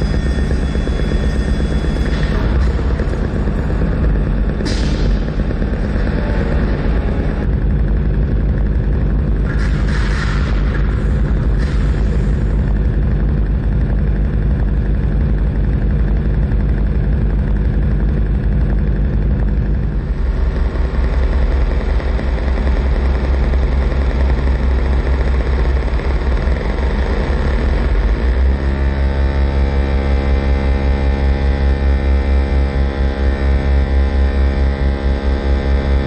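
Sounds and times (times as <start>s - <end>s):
hissing electronic noise: 0.0s - 17.2s
low bass hum: 0.0s - 36.0s.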